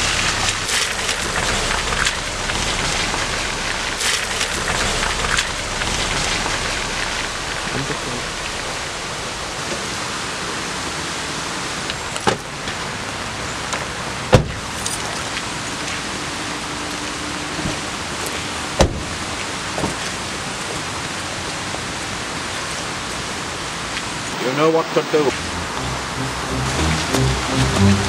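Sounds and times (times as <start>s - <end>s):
water hiss: 0.0s - 12.1s
car doors shutting: 14.3s - 15.2s, 18.8s - 19.2s.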